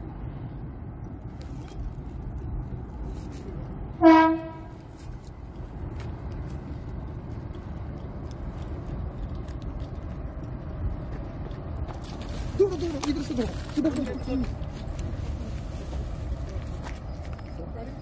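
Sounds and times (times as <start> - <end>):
steady low rumble: 0.0 - 18.0
train horn toot: 4.0 - 4.8.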